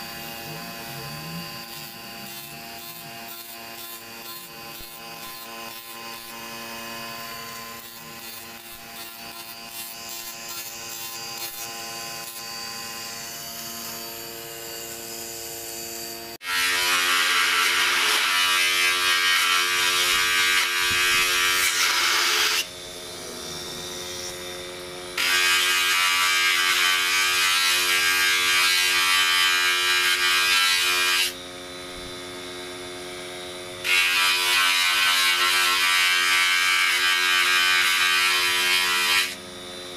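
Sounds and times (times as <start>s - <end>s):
electric motor humming: 0.0s - 30.2s.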